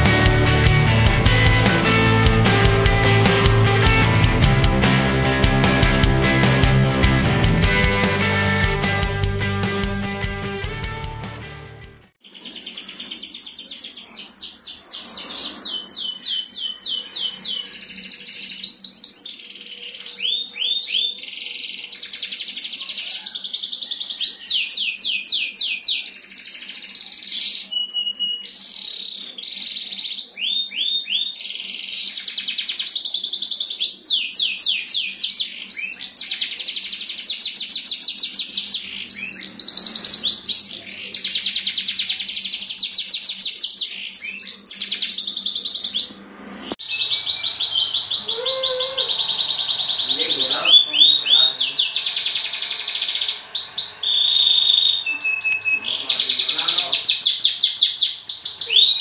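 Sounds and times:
canary singing trills: 12.2 - 46.2, 46.8 - 59.0.

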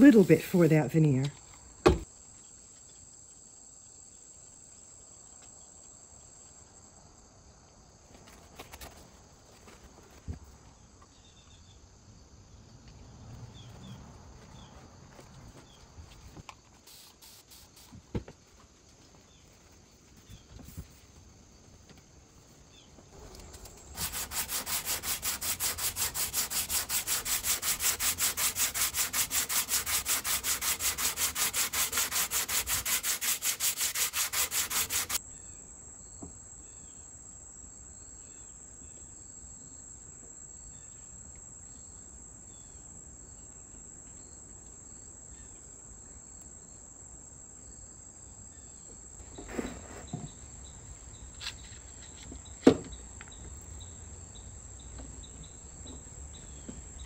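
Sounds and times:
hand sanding wood: 23.7 - 35.2.

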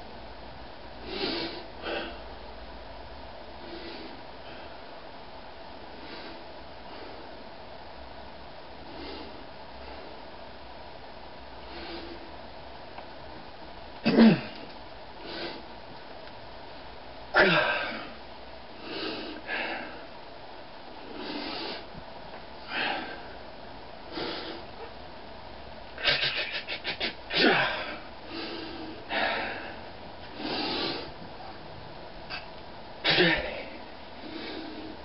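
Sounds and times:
man grunting: 17.4 - 18.1, 27.3 - 28.0.

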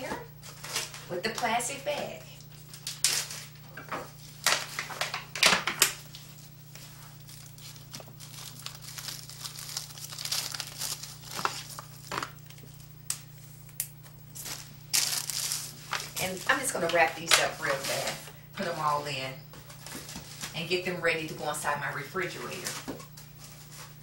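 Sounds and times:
low steady hum: 0.0 - 24.0
food wrap crinkling: 2.4 - 19.0.

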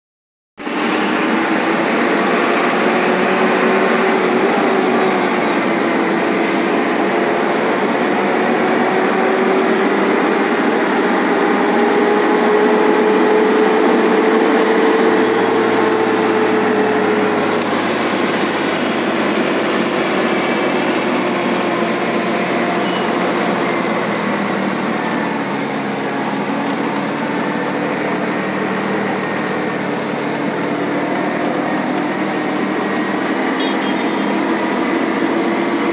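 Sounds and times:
truck diesel engine running: 0.6 - 35.9.

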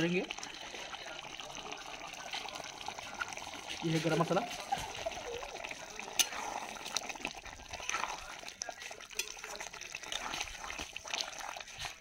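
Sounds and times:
thick curry squelching: 2.3 - 12.0
ladle scraping metal pan: 6.0 - 6.9.

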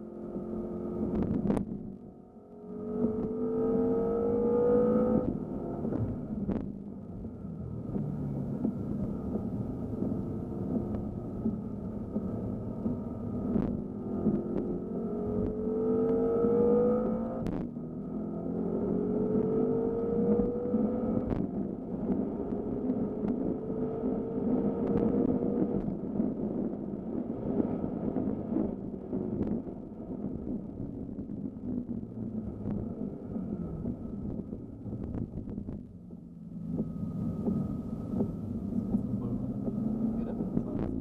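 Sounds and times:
car engine accelerating hard: 2.6 - 29.6, 36.5 - 41.0.

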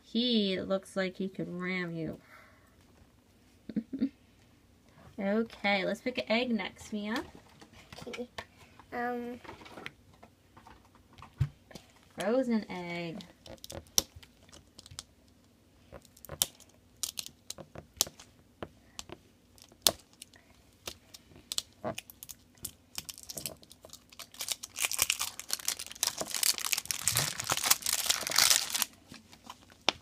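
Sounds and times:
plastic wrapper crinkling and tearing: 13.3 - 15.1, 16.0 - 18.3, 19.6 - 30.0.

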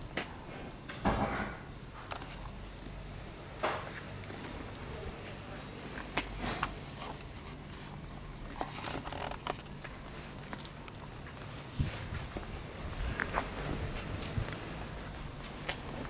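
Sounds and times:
footsteps: 3.5 - 16.0.

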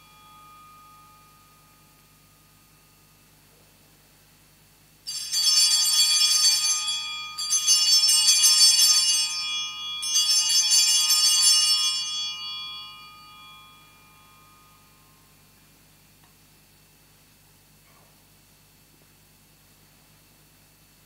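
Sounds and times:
small altar bells jangling: 5.1 - 15.4.

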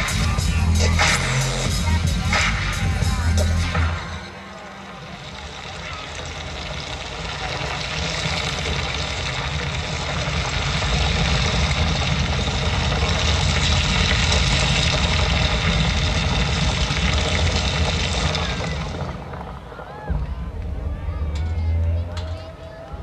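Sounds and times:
deep rumble with rushing hiss: 5.1 - 22.2.

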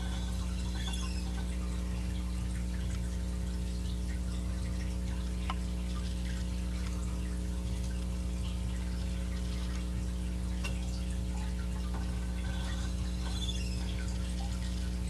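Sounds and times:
small squeaks: 0.0 - 2.8, 10.6 - 15.0
electric motor hum: 0.0 - 4.3.

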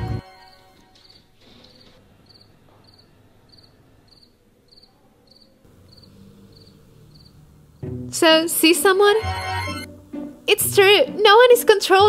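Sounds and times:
crickets chirping: 2.2 - 8.0.

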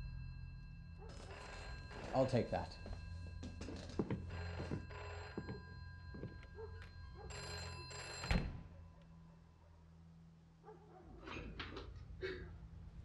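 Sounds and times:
telephone bell ringing: 0.0 - 8.6.

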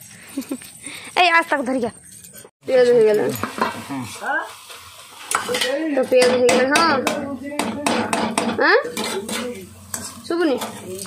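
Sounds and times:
metal spatula scraping a pan: 1.9 - 11.0
onions frying in oil: 2.6 - 11.0.

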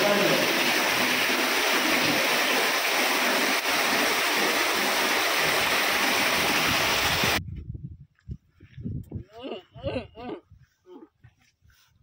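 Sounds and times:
water gushing: 0.0 - 7.4.

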